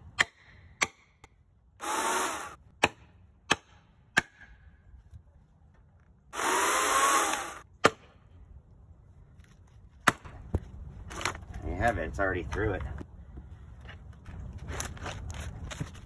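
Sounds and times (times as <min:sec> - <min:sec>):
electric chainsaw cutting log: 0:01.8 - 0:02.6, 0:06.4 - 0:07.6.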